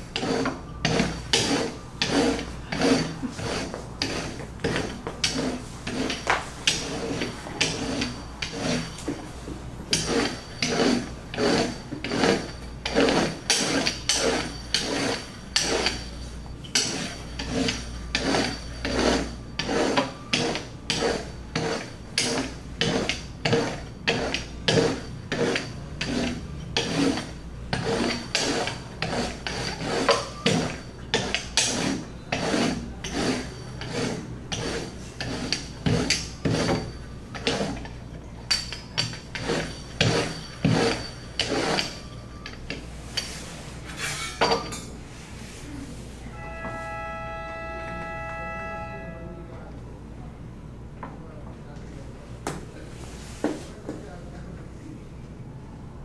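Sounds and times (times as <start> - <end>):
rolling pin rubbing over dough: 0.0 - 38.0, 38.7 - 44.3.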